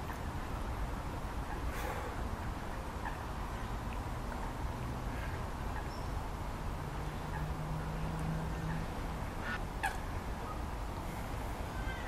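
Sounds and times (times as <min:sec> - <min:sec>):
bird calls: 0:05.7 - 0:06.2.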